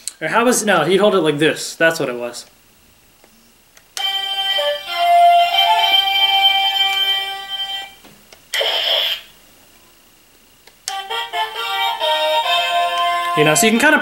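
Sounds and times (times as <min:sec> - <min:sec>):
electronic flute-like toy melody: 0:04.0 - 0:08.0, 0:10.9 - 0:14.0.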